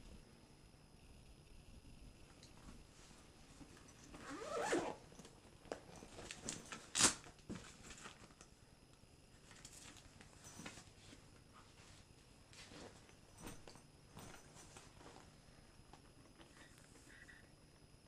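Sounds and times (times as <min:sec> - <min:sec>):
bag straps clicking and rustling: 0:03.6 - 0:08.4, 0:12.6 - 0:15.3
backpack zipper pulled: 0:04.1 - 0:05.0.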